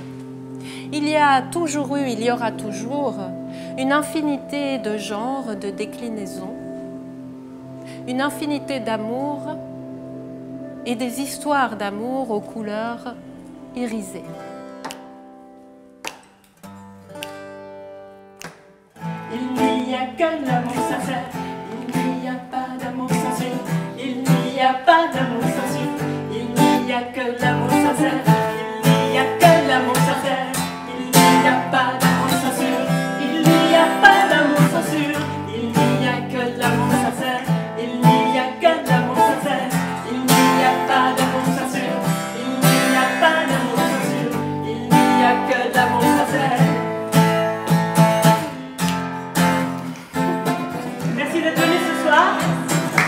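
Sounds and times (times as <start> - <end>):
acoustic guitar strumming: 0.0 - 53.0
women singing: 19.3 - 46.9.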